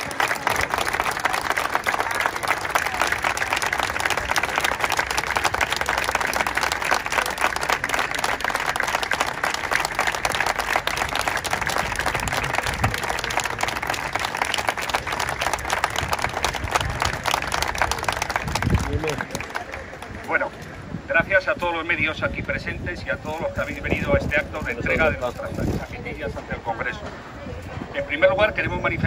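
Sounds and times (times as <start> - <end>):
crowd applauding: 0.0 - 20.6.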